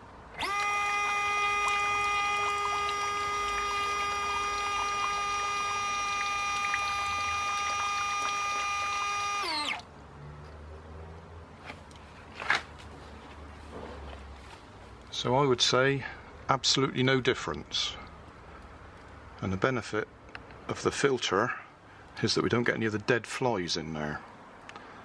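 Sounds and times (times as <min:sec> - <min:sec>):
small electric motor whining: 0:00.4 - 0:09.9.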